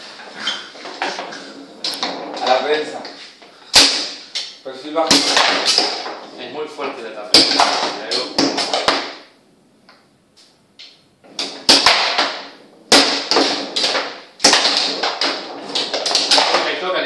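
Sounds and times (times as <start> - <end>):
foosball knocks and clacks: 0.7 - 3.2, 5.1 - 6.4, 7.3 - 9.3, 10.8 - 16.9.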